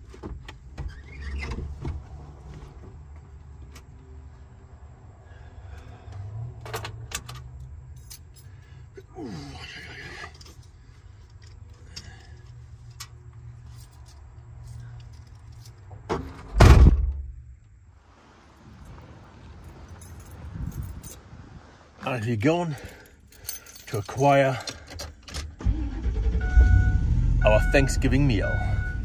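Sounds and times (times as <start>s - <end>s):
van door slamming shut: 16.1s - 17.3s.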